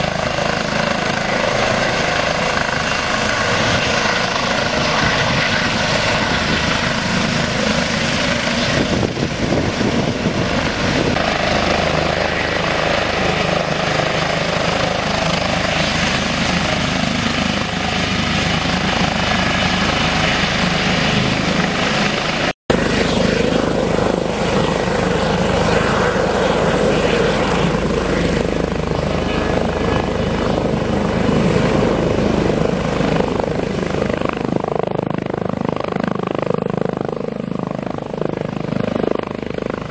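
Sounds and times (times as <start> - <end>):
helicopter rotor and turbine noise: 0.0 - 39.9.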